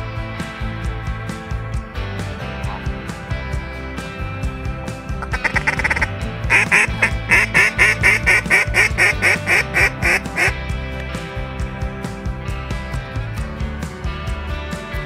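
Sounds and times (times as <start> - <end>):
background music: 0.0 - 15.0
duck quacking: 5.2 - 10.6.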